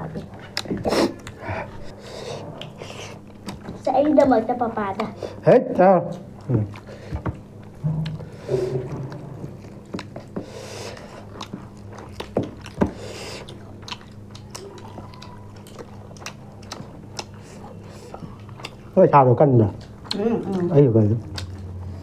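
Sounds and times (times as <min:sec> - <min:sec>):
people chewing: 0:00.0 - 0:22.0.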